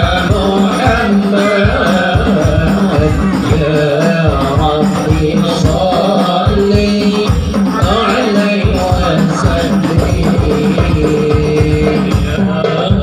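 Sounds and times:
frame drums beating: 0:00.0 - 0:13.0
wavering melody: 0:07.6 - 0:10.6.

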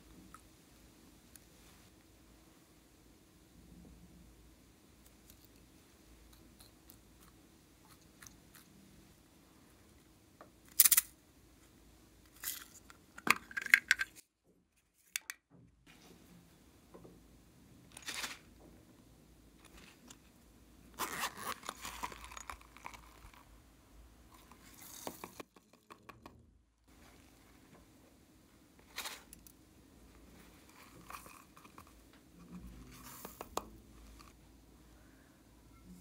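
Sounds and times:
packets crinkling and tearing: 0:21.0 - 0:23.4.

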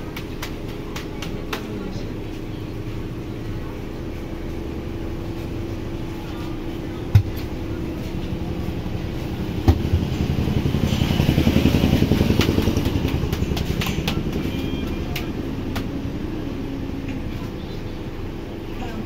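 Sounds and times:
motorcycle engine running: 0:04.3 - 0:18.4.

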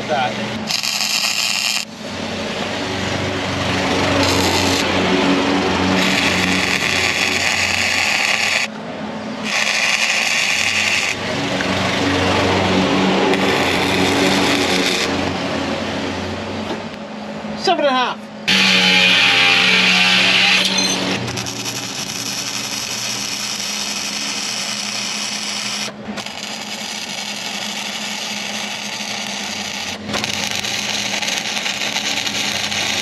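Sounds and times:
welder arc crackling and sizzling: 0:00.7 - 0:01.9, 0:03.8 - 0:05.3, 0:06.0 - 0:08.7, 0:09.4 - 0:11.2, 0:13.3 - 0:15.3, 0:18.5 - 0:33.0.

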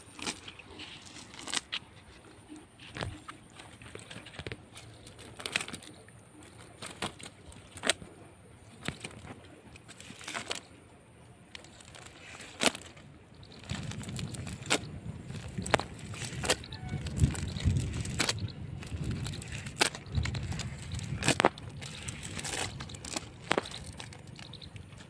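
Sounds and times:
cast net clicks and rustles: 0:00.0 - 0:25.0
low rumbling noise: 0:10.8 - 0:25.0.

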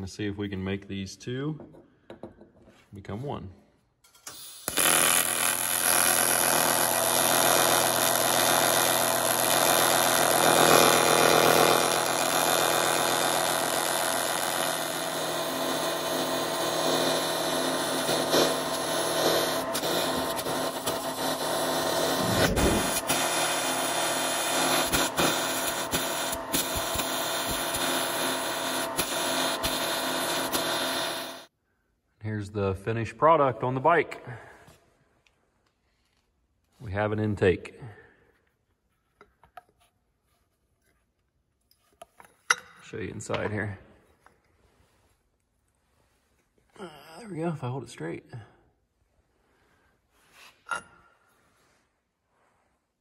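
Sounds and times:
welding arc buzzing: 0:04.2 - 0:31.5.

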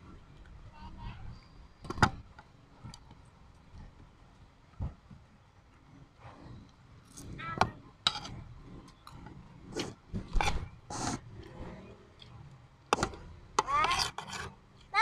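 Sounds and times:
metal spoon scraping ceramic plate: 0:08.1 - 0:08.4, 0:13.6 - 0:14.6.

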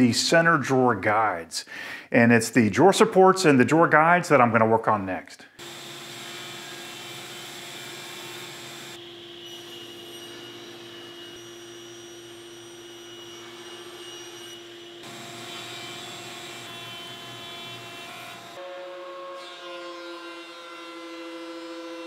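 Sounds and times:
woodworking machines humming: 0:05.6 - 0:22.0.

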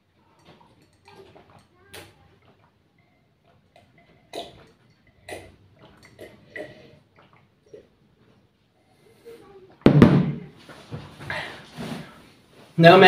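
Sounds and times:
person gulping water: 0:00.4 - 0:08.5.

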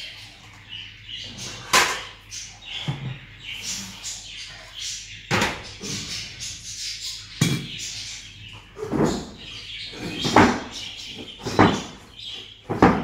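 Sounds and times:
kitchen things knocking and clattering: 0:01.7 - 0:02.1, 0:10.1 - 0:12.0, 0:12.7 - 0:13.0.

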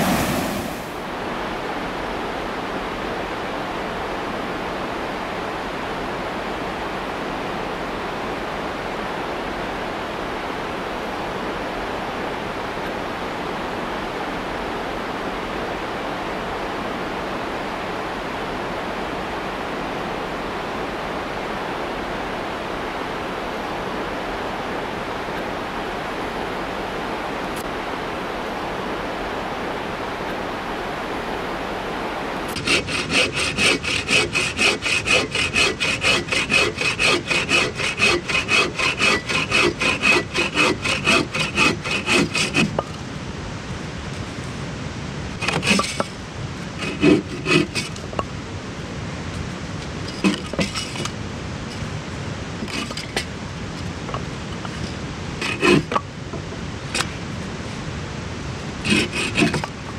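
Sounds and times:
steady rushing hiss: 0:00.0 - 0:59.9
hand saw cutting wood: 0:32.5 - 0:43.0, 0:45.4 - 0:46.2, 0:46.8 - 0:48.2, 0:50.0 - 0:51.8, 0:52.6 - 0:53.3, 0:54.6 - 0:56.0, 0:58.8 - 0:59.8.

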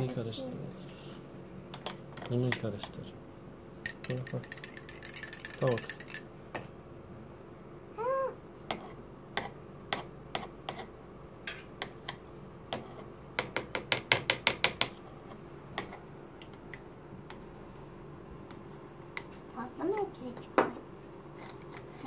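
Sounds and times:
teaspoon clinking against glass: 0:03.9 - 0:06.7.

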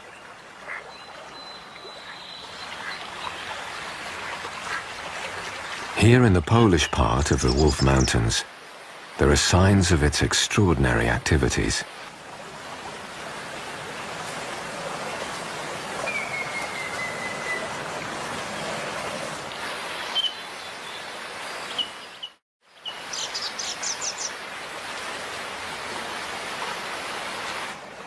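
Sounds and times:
stream of running water: 0:00.0 - 0:28.0
birds calling: 0:00.7 - 0:08.4, 0:16.0 - 0:17.8.

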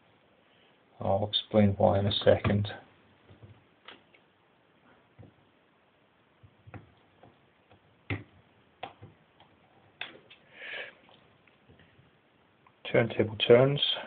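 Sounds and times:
fingers clicking and tapping wires: 0:06.4 - 0:10.4.

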